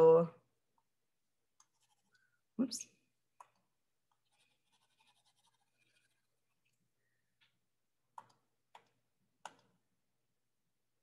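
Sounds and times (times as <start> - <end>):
soft scratching: 1.6 - 2.3, 4.1 - 6.8.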